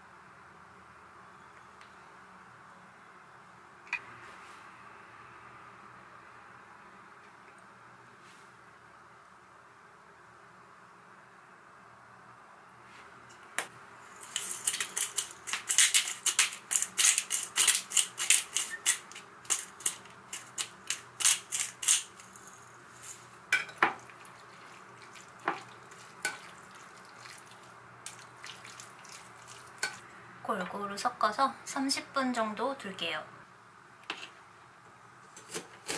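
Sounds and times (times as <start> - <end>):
pepper grinder crunching: 14.1 - 23.4.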